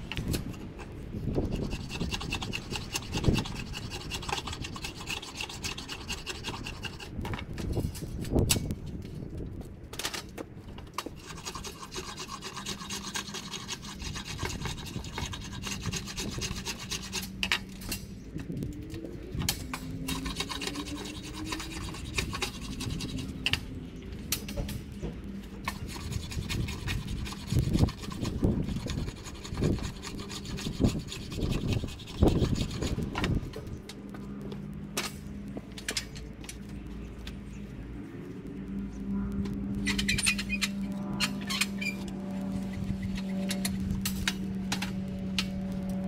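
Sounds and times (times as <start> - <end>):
blade shaving wood: 0.1 - 8.2, 11.0 - 17.6, 18.9 - 23.8, 25.5 - 35.1.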